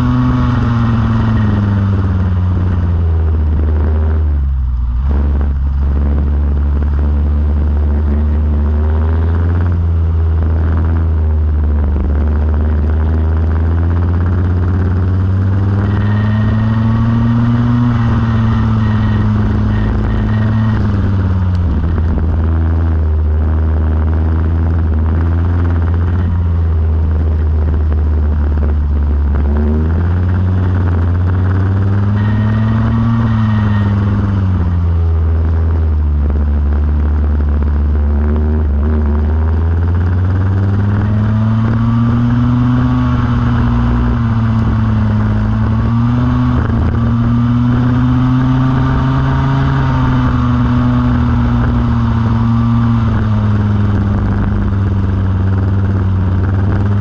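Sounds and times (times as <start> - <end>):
go-kart engine revving: 0.0 - 57.0.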